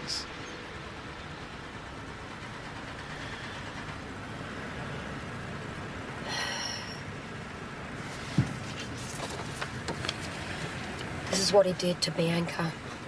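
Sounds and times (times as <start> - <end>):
traffic rumble inside car: 0.0 - 13.0.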